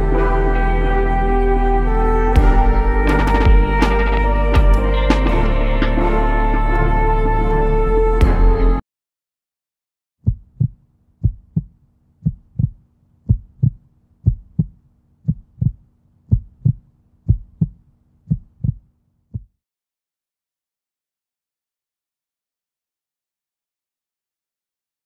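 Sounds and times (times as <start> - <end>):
heartbeat thumps: 2.4 - 6.0, 10.2 - 19.6.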